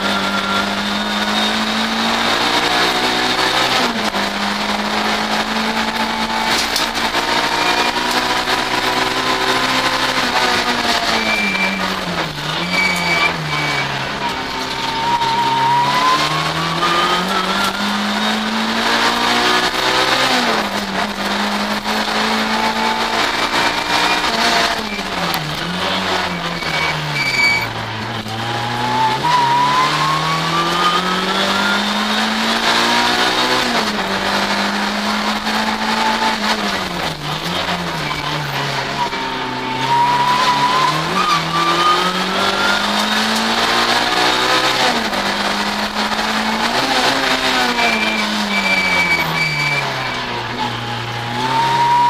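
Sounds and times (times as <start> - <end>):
race car engine accelerating: 0.0 - 52.0
tyre squeals: 5.7 - 18.4, 22.2 - 32.0, 37.4 - 45.0, 46.3 - 52.0.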